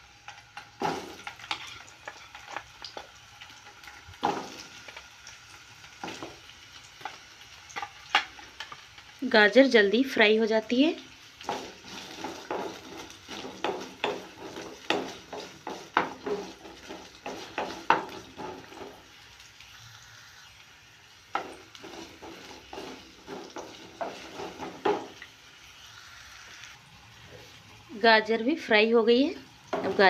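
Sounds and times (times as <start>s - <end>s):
carrots sizzling in oil: 0.0s - 30.0s
wooden spatula scraping pan: 11.4s - 19.0s, 21.3s - 25.2s.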